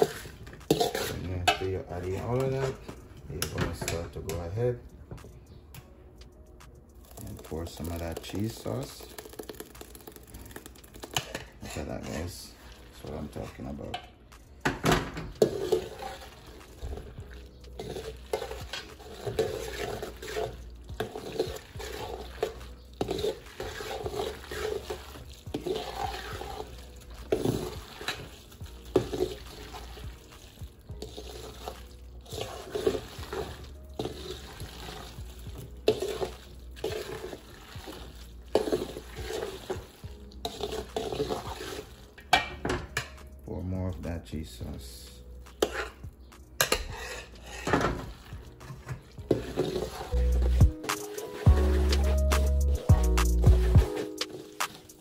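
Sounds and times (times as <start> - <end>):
spoon knocking and scraping a bowl: 0.0 - 2.8, 15.2 - 16.2, 16.8 - 29.5, 35.5 - 37.4, 38.5 - 43.3, 45.5 - 52.1
wet stirring strokes: 0.0 - 4.6, 6.3 - 14.5, 15.3 - 42.4, 43.2 - 55.0.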